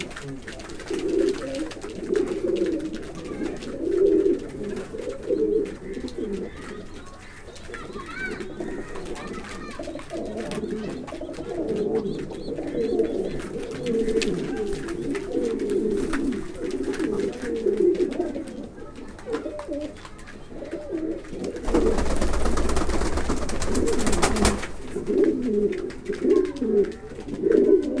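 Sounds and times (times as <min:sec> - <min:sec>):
pigeons cooing: 0:00.0 - 0:28.0
loud rustling: 0:21.4 - 0:25.4.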